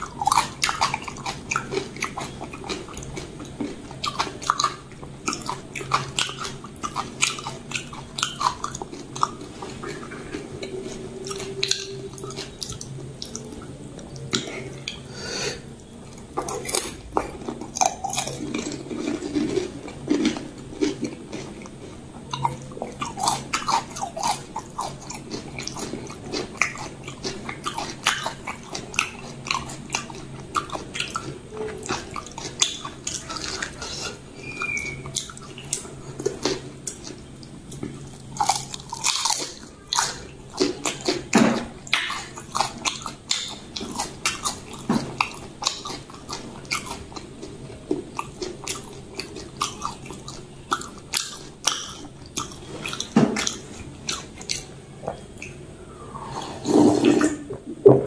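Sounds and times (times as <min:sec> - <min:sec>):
crunchy food chewing: 0:00.0 - 0:55.6.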